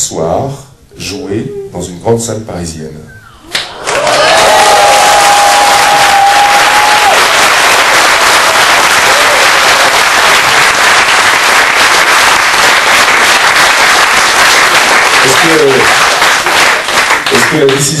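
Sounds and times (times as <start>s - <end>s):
audience clapping and cheering: 3.5s - 18.0s
long held cry: 3.8s - 7.6s, 8.4s - 10.3s.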